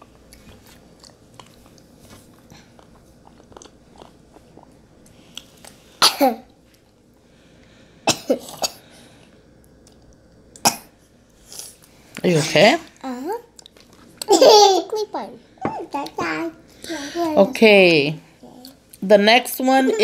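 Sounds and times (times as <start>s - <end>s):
child coughing: 6.0s - 6.4s, 8.1s - 8.8s.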